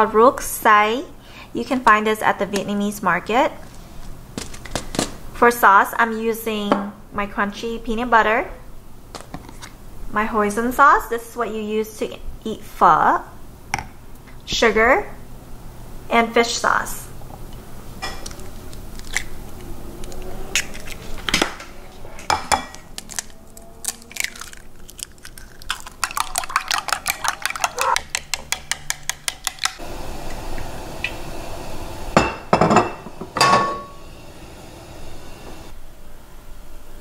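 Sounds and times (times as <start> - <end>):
kitchen knocks and clinks: 22.2 - 22.9, 32.2 - 33.9
eggs beaten in ceramic bowl: 24.4 - 29.8.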